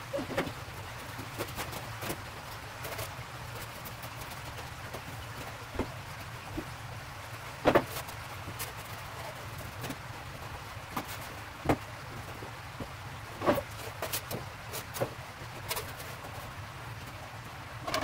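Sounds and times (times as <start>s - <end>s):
knocks and scrapes of foam panels: 5.7s - 6.8s, 7.6s - 8.8s, 10.9s - 16.4s.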